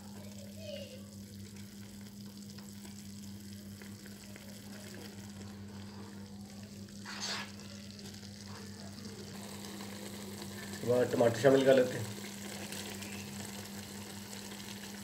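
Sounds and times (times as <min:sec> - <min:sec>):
meat simmering bubbling: 0:00.0 - 0:15.0
spatula scraping rustle: 0:07.0 - 0:07.7.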